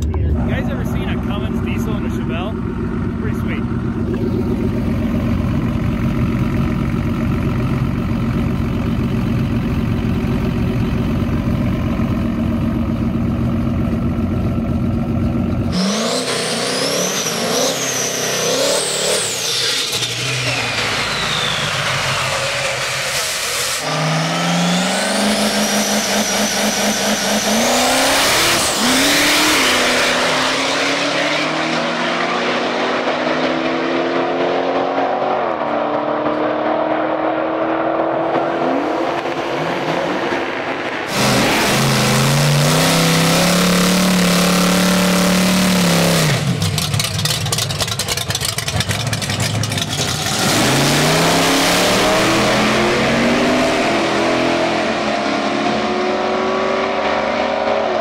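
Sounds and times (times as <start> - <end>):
diesel engine idling: 0.0 - 15.7, 46.5 - 50.3
car engine revving and accelerating: 15.5 - 47.0, 49.3 - 58.0.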